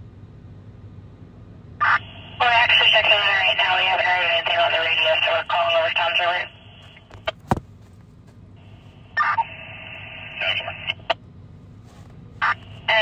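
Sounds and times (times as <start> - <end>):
garbled radio voice bursts: 1.8 - 6.6, 9.2 - 11.1, 12.4 - 13.0
radio static hiss: 1.8 - 7.4, 8.6 - 11.2, 12.4 - 13.0.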